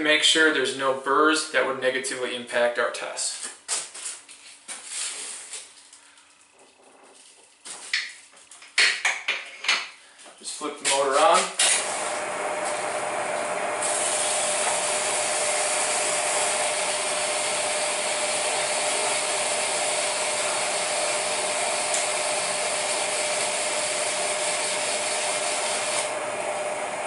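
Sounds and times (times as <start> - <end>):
electric motor whine: 11.7 - 27.0.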